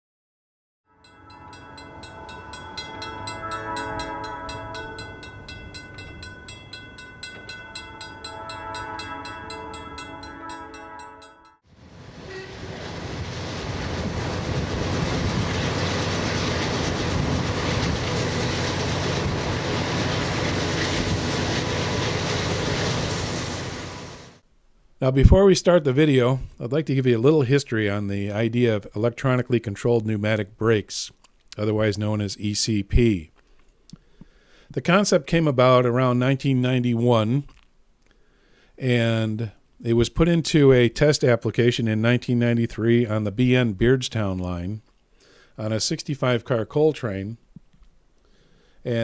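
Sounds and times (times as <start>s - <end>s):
train horn blasts: 0.9s - 6.6s, 7.8s - 24.3s
crossing bell dinging: 0.9s - 11.6s
moving freight train rumble: 1.0s - 24.4s.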